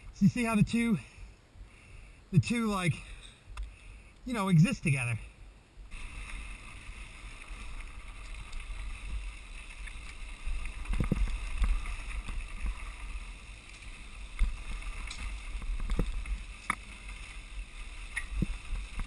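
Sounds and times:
wind rumble on microphone: 5.8 - 19.0.

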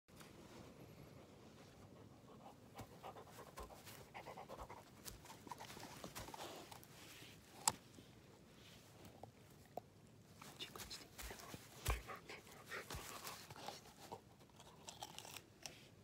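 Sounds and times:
dog crunching a carrot: 2.8 - 6.9, 7.5 - 7.8, 11.3 - 16.0.

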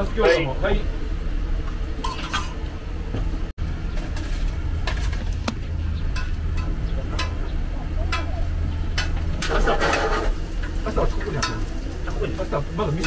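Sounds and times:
low mechanical hum: 0.0 - 13.0
cooking utensils clicking: 6.1 - 7.5, 8.1 - 11.7.

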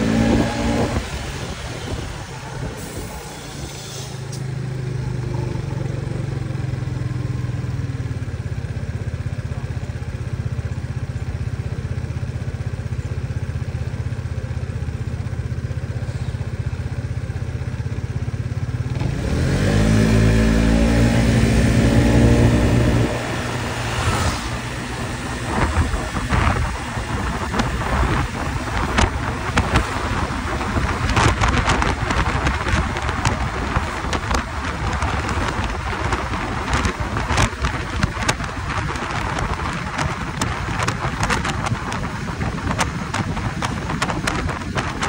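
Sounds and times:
wind on microphone: 0.0 - 4.3, 19.9 - 45.0
motor scooter engine: 0.0 - 45.0.

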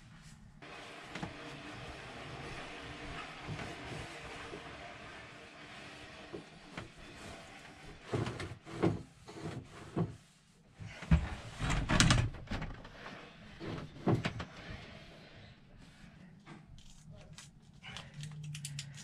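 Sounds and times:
cloth rubbing on plastic tank: 0.6 - 11.6.

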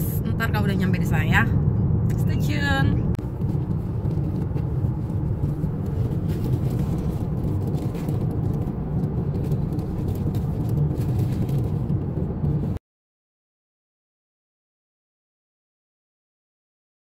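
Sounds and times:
car engine and tyre rumble: 0.0 - 12.8.

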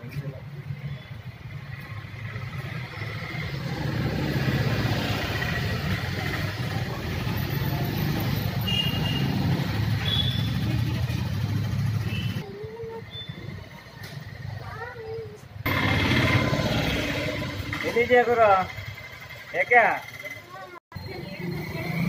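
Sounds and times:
engine rumbling: 0.0 - 22.0.

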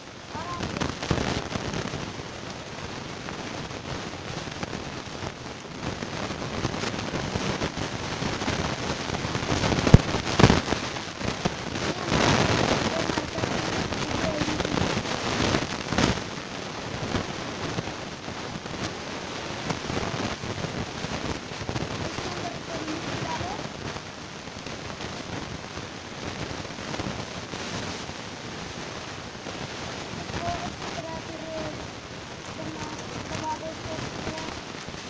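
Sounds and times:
crackling handling noise: 32.3 - 35.0.

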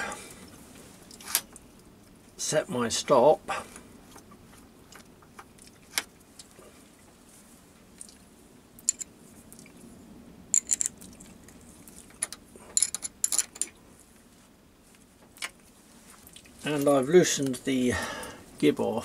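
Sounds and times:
spanner clinking against metal: 8.8 - 9.1, 12.2 - 13.7.

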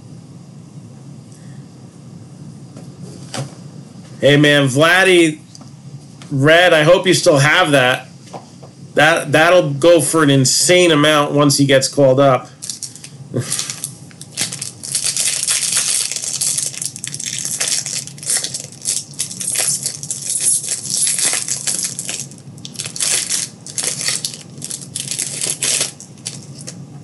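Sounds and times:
wrappers crinkling and tearing: 12.6 - 26.8.

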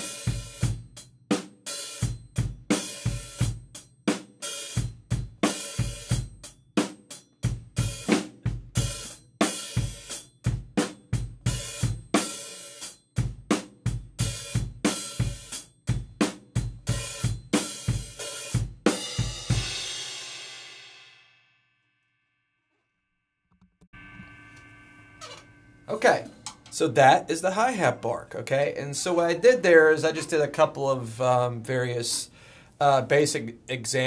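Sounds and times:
drum kit groove: 0.0 - 20.9, 25.2 - 34.0
cymbal crash ringing: 24.0 - 27.9.

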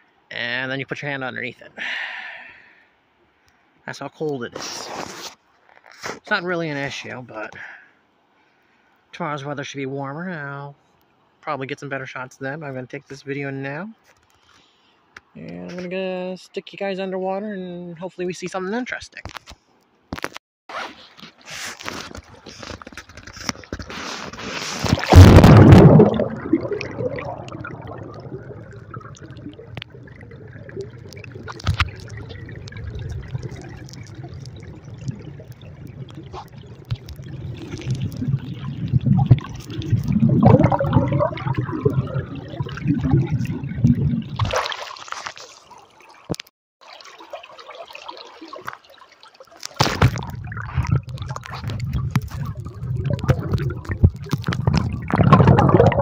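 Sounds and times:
low water churning: 22.0 - 56.0
muffled river water gurgling: 22.1 - 56.0.

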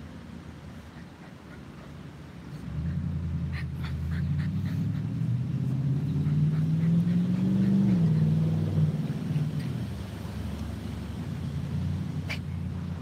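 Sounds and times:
heavy vehicle engine accelerating: 2.4 - 13.0.

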